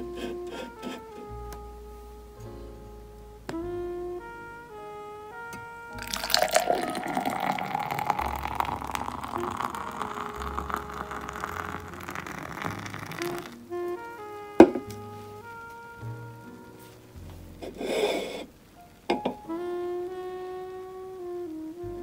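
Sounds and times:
beer pouring into a glass: 6.0 - 13.6
rising pitch tone: 6.0 - 13.8.

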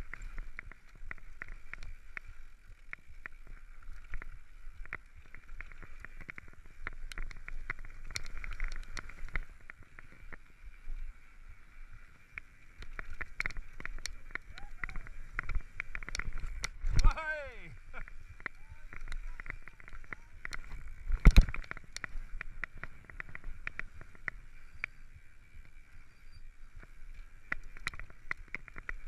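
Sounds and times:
bike clicks and rattles: 0.0 - 10.6, 12.3 - 17.2, 17.9 - 25.0, 27.4 - 29.0.

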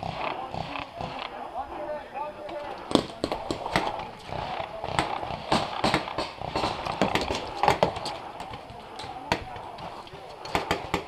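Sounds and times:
paintball markers firing: 2.5 - 11.0
paintballs smacking into bunkers: 2.8 - 11.0.

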